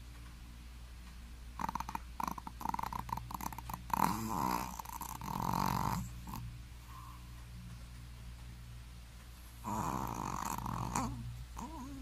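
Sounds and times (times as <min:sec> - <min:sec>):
dog snoring: 0:01.6 - 0:07.2, 0:09.6 - 0:12.0.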